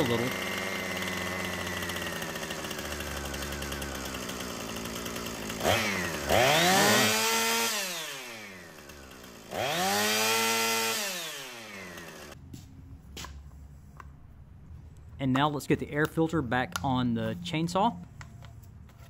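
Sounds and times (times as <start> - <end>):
chainsaw engine idling and revving: 0.0 - 12.4.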